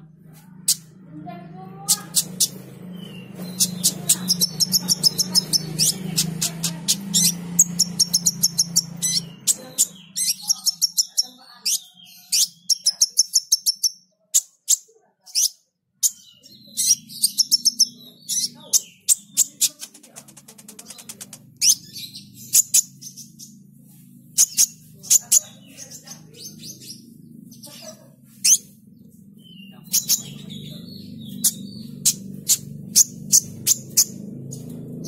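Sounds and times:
sunbird singing high chips and trills: 1.8 - 20.0, 29.4 - 34.8.

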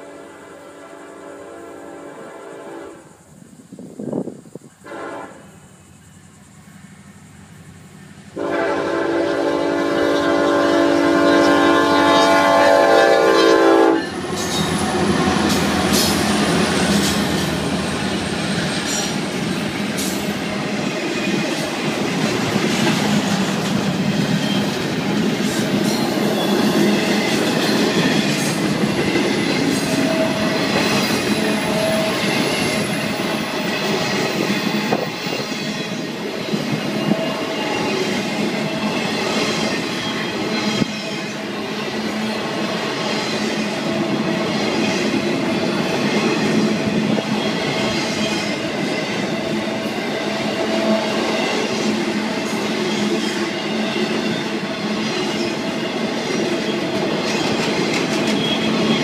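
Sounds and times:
locomotive air horn: 0.0 - 3.2, 4.8 - 5.6, 8.4 - 14.2
train wheels rolling over rail joints: 9.8 - 59.0
thin wheel squeals: 29.0 - 42.4.

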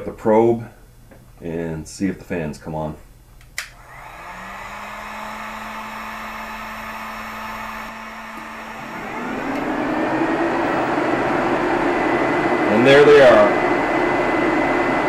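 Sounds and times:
radiator cooling fans whirring: 0.0 - 15.0
heat gun blowing: 3.6 - 12.6.

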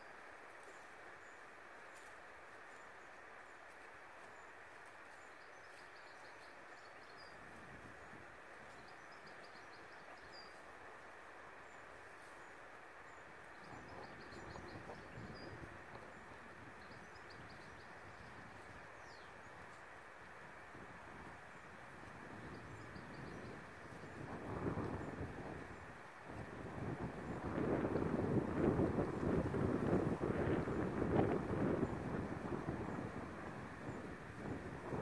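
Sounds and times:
small birds chirping: 0.0 - 19.9.

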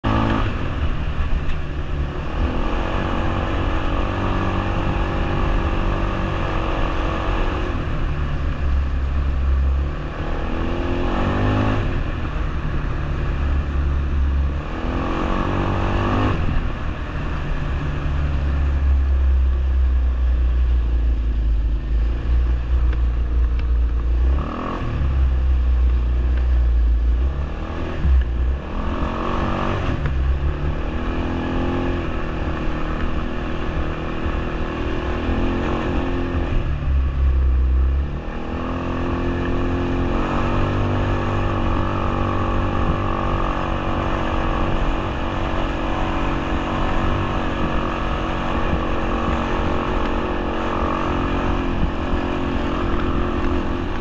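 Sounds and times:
heavy low rumble: 0.0 - 54.0
quad bike engine revving: 38.2 - 54.0.

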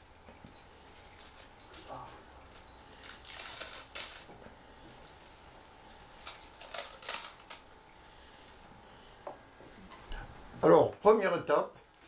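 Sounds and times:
wire brush scratching raffia: 0.0 - 8.6.

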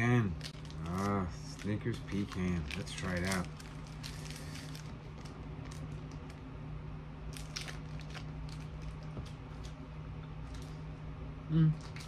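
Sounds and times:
person chewing candy bar: 0.4 - 6.3, 7.3 - 9.8.

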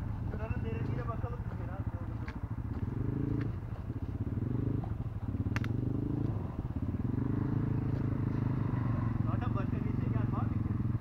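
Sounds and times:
atv engine revving in mud: 2.6 - 11.0
sharp click: 5.5 - 5.8.

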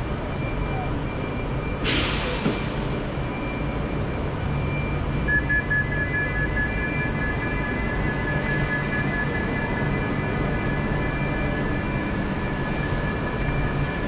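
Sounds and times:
high rapid beeping: 4.7 - 14.0.

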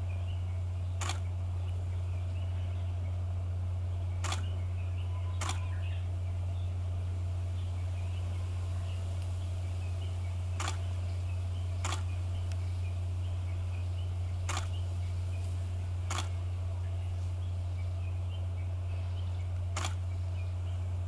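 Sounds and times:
steady low hum: 0.0 - 21.0
camera shutter clicks: 1.0 - 1.3, 4.2 - 4.5, 5.4 - 5.7, 10.6 - 10.9, 11.8 - 12.1, 14.5 - 14.8, 16.1 - 16.4, 19.7 - 20.0.

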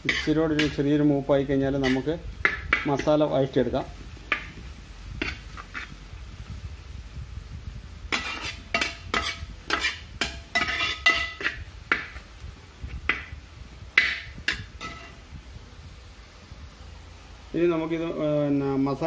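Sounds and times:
metal spoon scraping a pan: 0.0 - 3.2, 4.3 - 6.0, 8.1 - 12.2, 14.0 - 15.2
onions sauteing: 0.0 - 19.0.

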